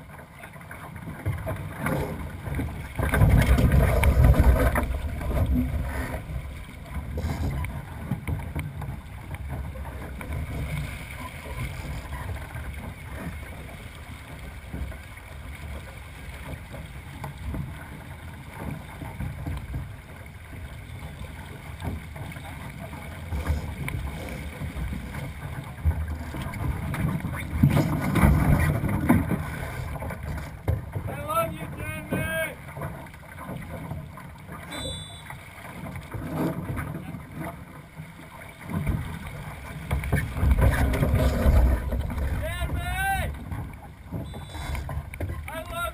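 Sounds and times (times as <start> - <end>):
water rushing along hull: 0.0 - 45.9.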